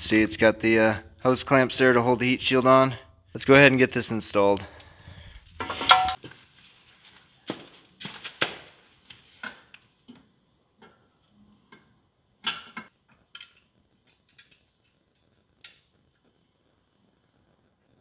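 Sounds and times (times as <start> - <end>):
ringing metal clinks: 5.7 - 6.2.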